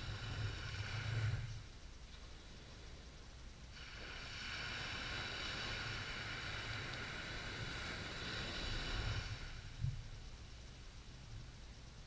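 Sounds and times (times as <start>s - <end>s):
surf hissing up the beach: 0.0s - 1.6s, 3.7s - 10.0s.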